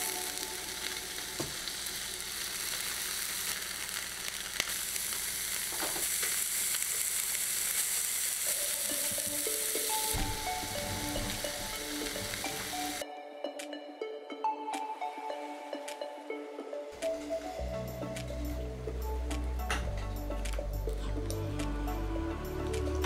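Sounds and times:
music: 0:00.0 - 0:02.0, 0:08.4 - 0:23.0
meat sizzling on a grill: 0:00.0 - 0:13.0.

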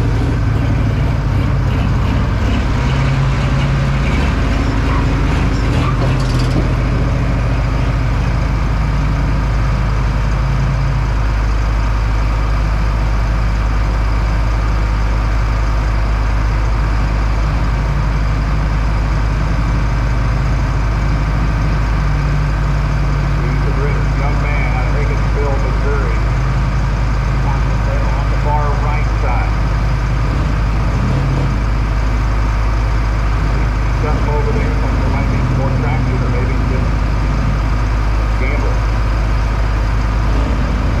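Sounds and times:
large engine idling: 0:00.0 - 0:41.0.

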